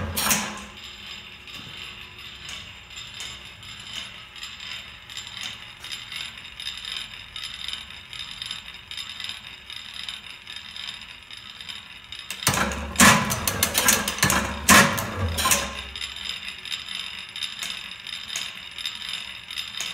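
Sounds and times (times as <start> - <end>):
loud metallic clatter with thuds: 12.3 - 16.0.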